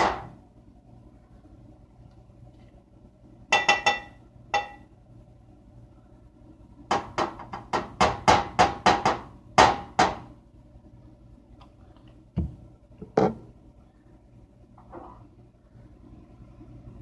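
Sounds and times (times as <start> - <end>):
kitchen items knocking and crackling: 0.0 - 0.4, 6.9 - 10.3.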